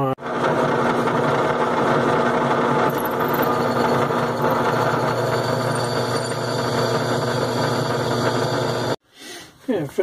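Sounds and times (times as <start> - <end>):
drill bit drilling steel: 0.2 - 9.0
drill press motor humming: 0.2 - 9.0.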